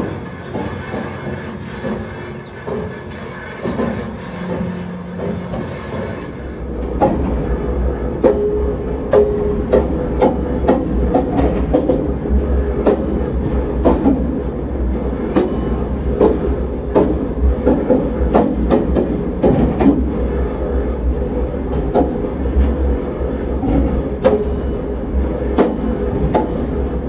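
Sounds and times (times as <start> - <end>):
clanks and knocks: 0.0 - 7.4, 15.3 - 20.4, 23.6 - 27.0
rail vehicle rumble: 0.0 - 27.0.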